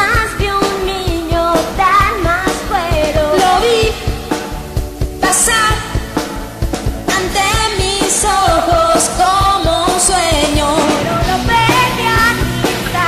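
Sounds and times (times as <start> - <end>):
person singing: 0.0 - 4.3, 7.1 - 13.0
pop-rock band playing: 0.0 - 13.0.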